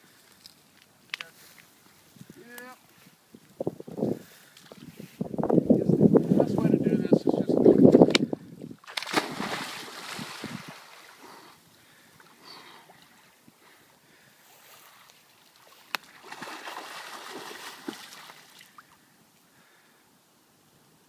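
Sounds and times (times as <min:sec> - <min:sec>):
person splashing into water: 0:08.8 - 0:11.2, 0:15.6 - 0:19.0
water churning: 0:08.8 - 0:11.4, 0:16.1 - 0:19.0.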